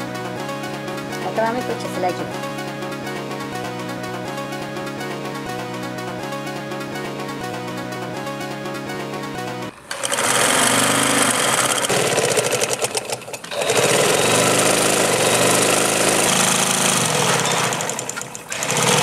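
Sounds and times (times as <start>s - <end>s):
sewing machine running: 9.8s - 19.0s.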